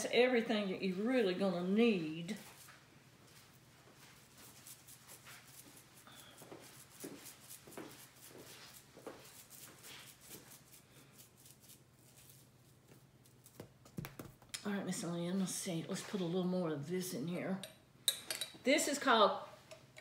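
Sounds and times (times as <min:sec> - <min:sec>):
shaker bottle rattling: 0:04.4 - 0:14.6.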